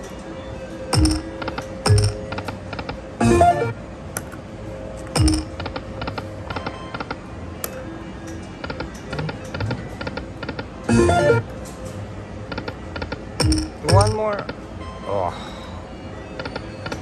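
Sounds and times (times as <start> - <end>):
steady electronic tone: 1.0 - 1.3, 3.2 - 3.8, 10.9 - 11.5.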